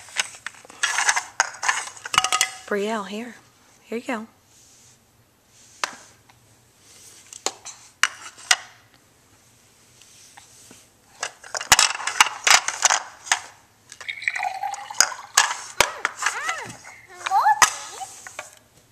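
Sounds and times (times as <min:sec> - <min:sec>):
plastic toy pieces clattering: 0:00.1 - 0:02.6, 0:11.2 - 0:14.1, 0:15.0 - 0:18.5.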